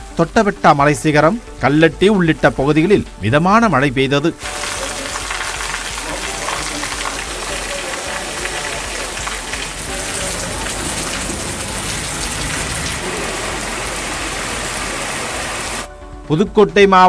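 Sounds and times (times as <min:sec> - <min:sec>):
rain on wet road: 0:04.4 - 0:15.9.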